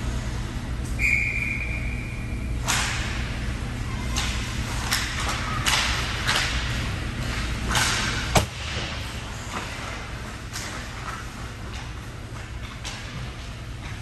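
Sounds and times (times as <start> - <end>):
indoor rink hum: 0.0 - 14.0
hockey stick or puck clack: 7.3 - 8.5.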